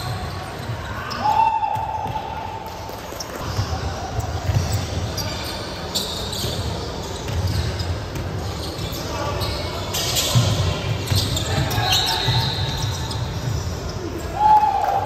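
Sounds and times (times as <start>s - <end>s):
basketball bouncing: 3.4s - 5.1s, 7.2s - 8.4s.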